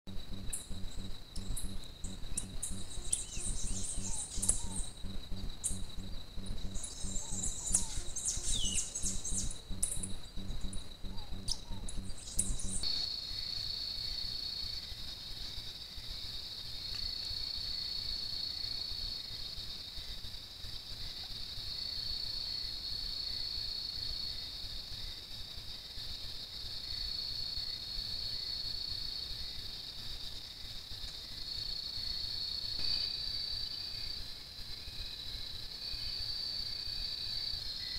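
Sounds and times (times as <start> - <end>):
insect clicks: 0.1 - 12.8
crickets trilling: 0.1 - 37.9
high insect chirps: 0.1 - 37.9.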